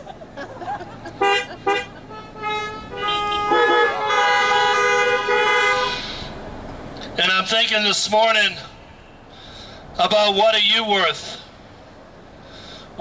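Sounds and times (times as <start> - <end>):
car horns honking: 1.0 - 6.4.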